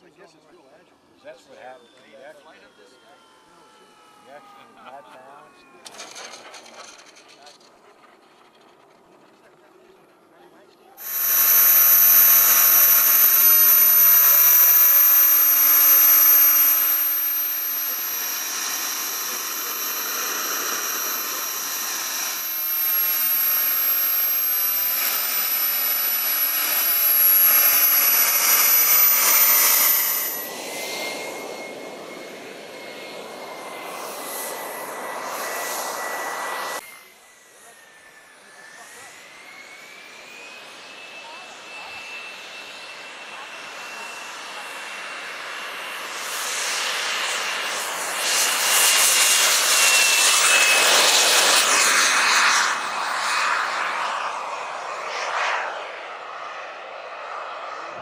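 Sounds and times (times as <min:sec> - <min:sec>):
jet turbine engine whine: 0:01.0 - 0:09.4, 0:11.0 - 0:58.0
faint rising tone: 0:11.0 - 0:33.1.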